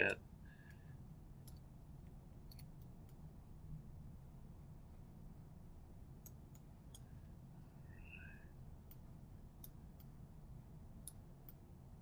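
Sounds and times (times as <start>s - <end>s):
low room hum: 0.0s - 12.0s
computer mouse clicks: 1.4s - 1.7s, 2.4s - 3.2s, 6.2s - 7.1s, 8.8s - 10.2s.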